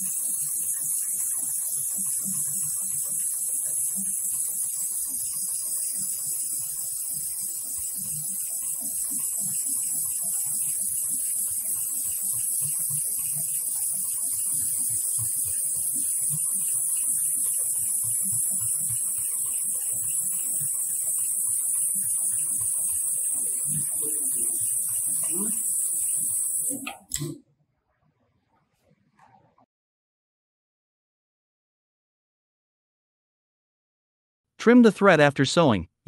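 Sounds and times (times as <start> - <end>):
compressed air hissing: 23.3 - 27.3.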